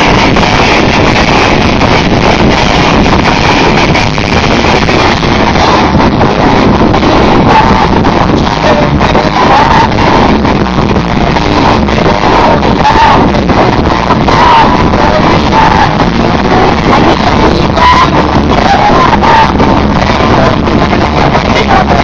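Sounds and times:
rock band playing distorted: 0.0s - 22.0s.

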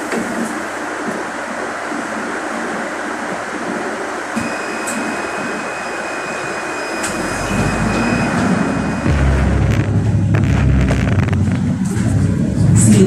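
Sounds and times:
steady high-pitched tone: 4.4s - 12.1s
bus engine pulling away: 7.0s - 10.8s.

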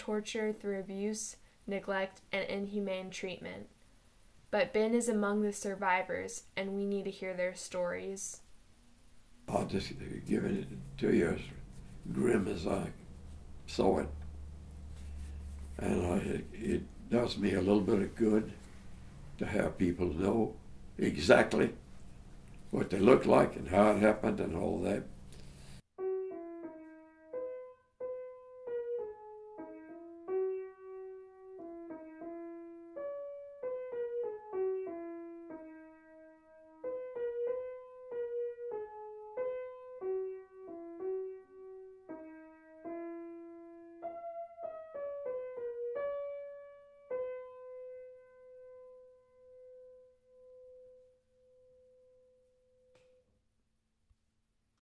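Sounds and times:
piano melody: 9.4s - 25.3s, 25.9s - 52.4s.

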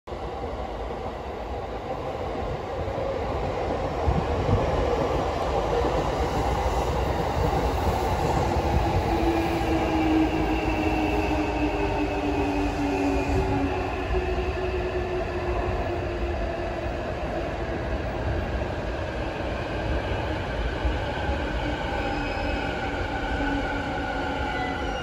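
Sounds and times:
electric train rumbling: 0.1s - 25.0s.

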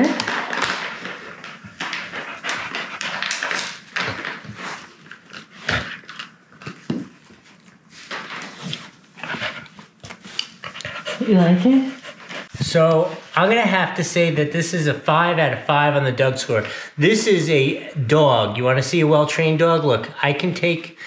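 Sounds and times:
dog chewing and crunching: 0.1s - 11.3s.

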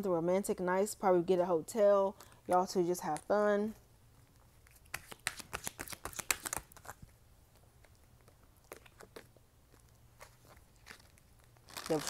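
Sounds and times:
cards being shuffled: 4.6s - 7.2s, 7.8s - 12.0s.

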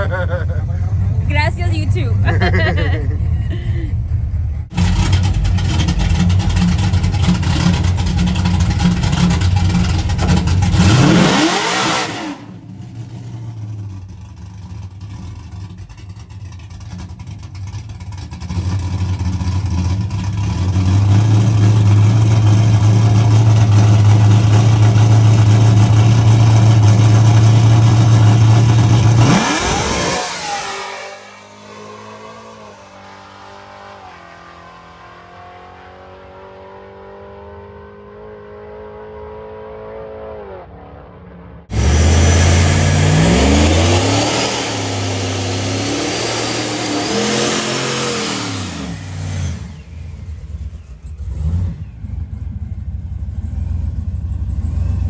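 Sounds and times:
truck engine revving loud: 4.7s - 13.6s, 20.6s - 34.5s, 41.7s - 52.2s.

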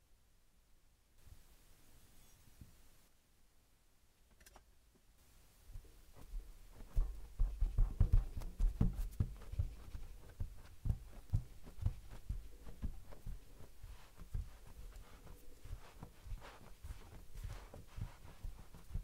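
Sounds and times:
dull thumps: 5.8s - 19.0s.

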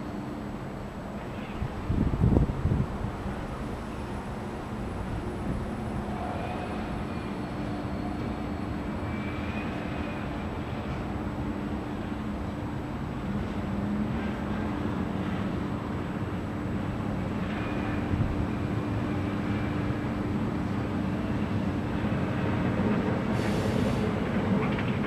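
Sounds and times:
freight train rumble and hum: 0.0s - 25.0s
faint high squeal: 3.8s - 10.5s.

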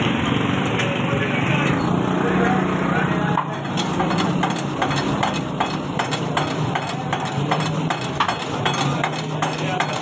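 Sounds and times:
metal spatulas clanking in wok: 3.4s - 10.0s.

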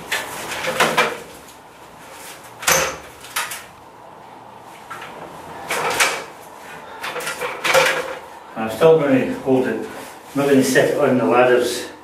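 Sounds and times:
stepladder knocking and clunking: 0.0s - 1.6s, 4.8s - 6.4s, 7.0s - 8.3s.

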